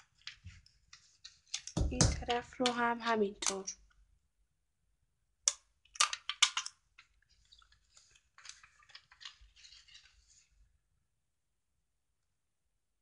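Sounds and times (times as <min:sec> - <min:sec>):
paper rustling: 0:00.0 - 0:02.4, 0:06.0 - 0:10.7
sharp clicks of paper box: 0:05.5 - 0:10.2.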